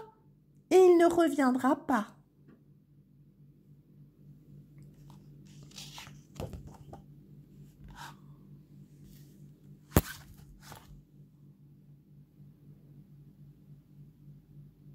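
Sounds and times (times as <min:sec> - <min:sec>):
book pages rustling: 0:04.8 - 0:07.0, 0:09.0 - 0:11.0.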